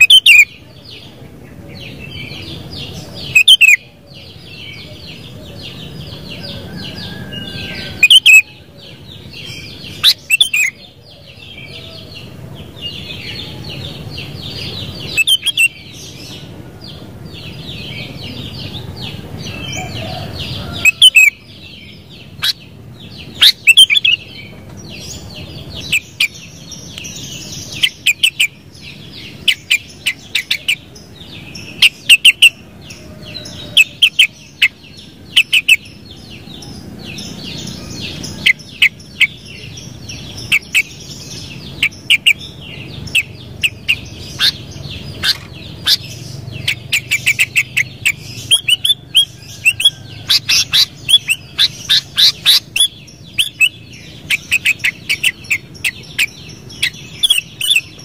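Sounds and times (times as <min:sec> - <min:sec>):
bird chirping sharply: 0:37.3 - 0:58.0.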